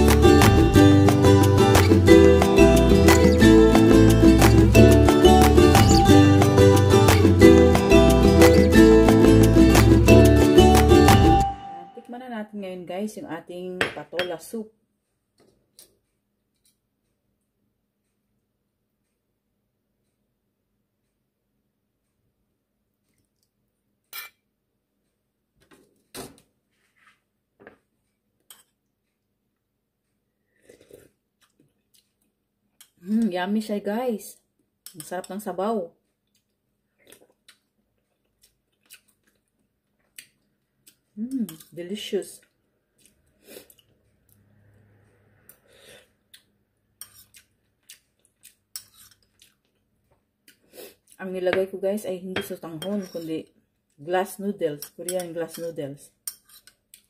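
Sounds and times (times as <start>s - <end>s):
spoon scraping bowl: 5.7s - 6.1s, 47.0s - 47.4s, 48.7s - 49.4s, 52.4s - 53.4s, 54.8s - 56.8s
metal spoon clinking on bowl: 24.1s - 24.4s, 52.4s - 53.3s.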